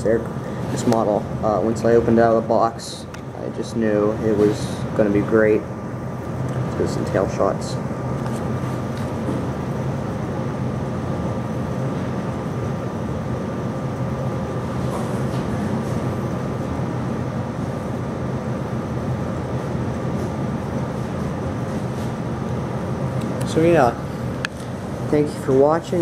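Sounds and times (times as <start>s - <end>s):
mechanical hum with rushing: 0.0s - 26.0s.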